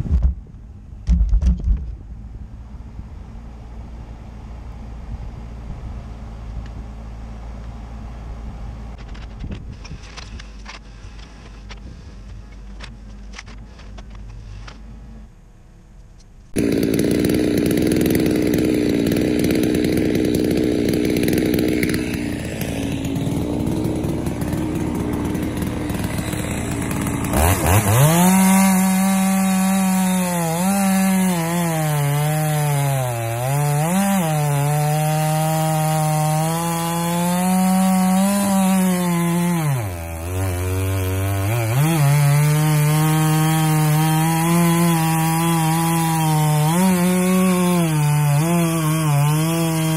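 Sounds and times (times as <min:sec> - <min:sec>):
chainsaw cutting log: 0:16.5 - 0:49.9.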